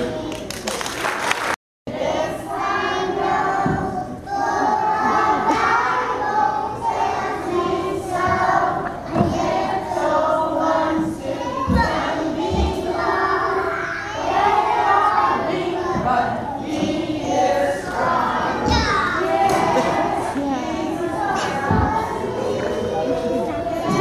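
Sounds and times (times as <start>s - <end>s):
young children singing: 0.0s - 0.8s, 1.9s - 24.0s
low thumps: 10.9s - 13.5s, 14.7s - 23.0s.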